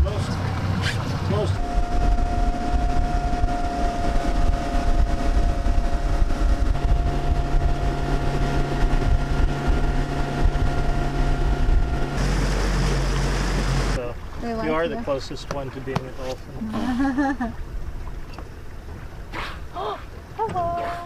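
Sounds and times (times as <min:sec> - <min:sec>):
outboard motor running: 0:00.0 - 0:21.0
wind on microphone: 0:00.6 - 0:14.0.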